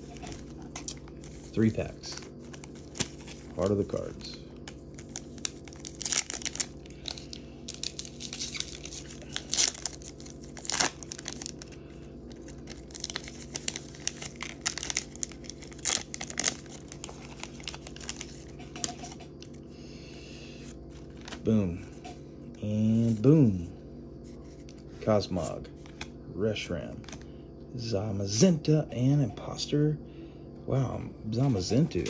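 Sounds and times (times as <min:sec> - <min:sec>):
foil wrapper tearing and crinkling: 0:00.0 - 0:19.1.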